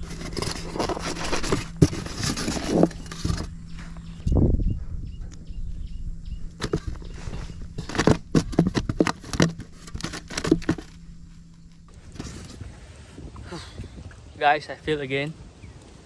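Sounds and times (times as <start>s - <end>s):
fish thrashing in cooler box: 0.0s - 3.5s, 6.6s - 11.0s.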